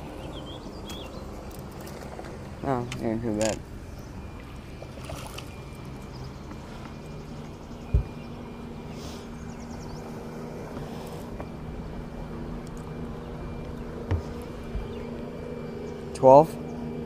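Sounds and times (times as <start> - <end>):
electric boat motor humming: 0.0 - 17.0
dull thump: 7.9 - 8.2.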